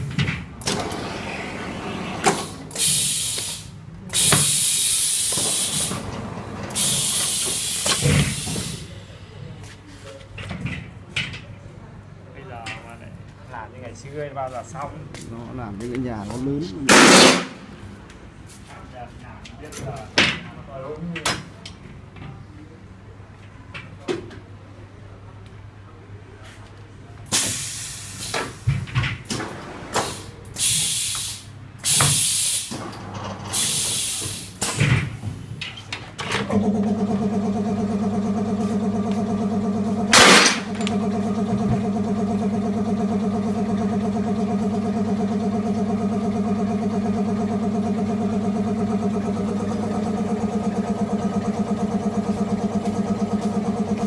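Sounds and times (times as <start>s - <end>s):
short air hisses: 2.8s - 5.9s, 6.8s - 9.0s, 27.3s - 28.6s, 30.0s - 32.7s, 33.6s - 34.7s
loud sharp burst: 16.9s - 17.6s, 40.1s - 40.8s
pulsing machine drone: 36.5s - 54.0s.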